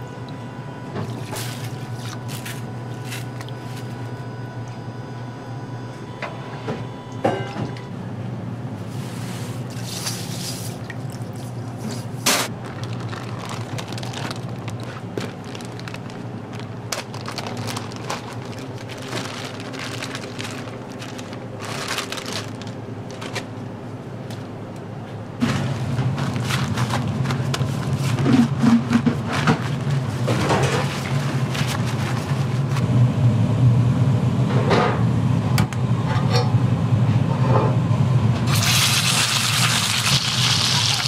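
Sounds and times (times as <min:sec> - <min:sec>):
steady low hum: 0:00.0 - 0:39.3
plastic bag crinkling: 0:12.5 - 0:23.6, 0:25.5 - 0:28.6, 0:29.2 - 0:32.8.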